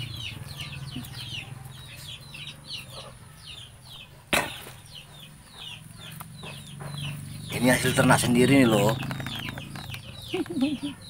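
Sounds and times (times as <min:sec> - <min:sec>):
chicks peeping: 0:00.0 - 0:11.0
sharp knock: 0:04.3 - 0:04.8.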